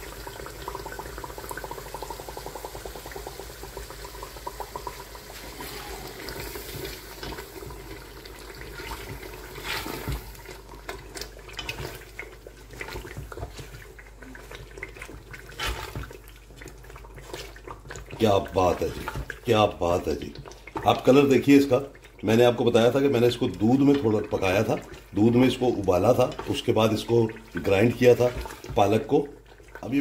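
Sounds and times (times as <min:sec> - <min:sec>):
gravy bubbling in a pot: 0:00.0 - 0:30.0
spatula scraping a pot: 0:08.8 - 0:10.5.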